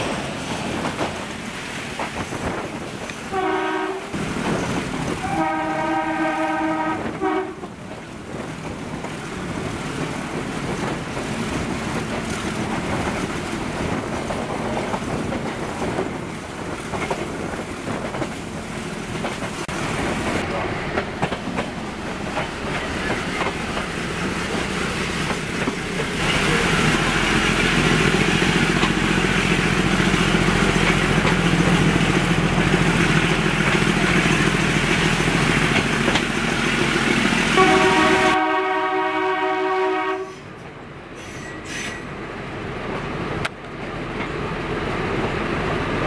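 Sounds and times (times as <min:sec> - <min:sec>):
train rolling noise: 0:00.0 - 0:46.0
locomotive horn blast: 0:03.3 - 0:04.2, 0:05.2 - 0:07.6, 0:37.6 - 0:40.5.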